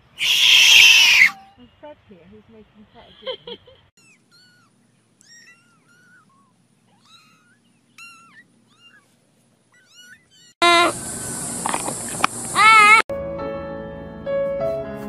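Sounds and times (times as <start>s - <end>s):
kittens mewing: 0.0s - 1.5s, 3.9s - 11.0s, 12.5s - 13.0s.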